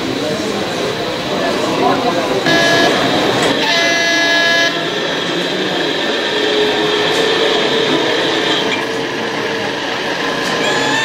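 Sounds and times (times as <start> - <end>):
model train whirring hum: 0.0 - 11.0
train horn toot: 2.5 - 5.0.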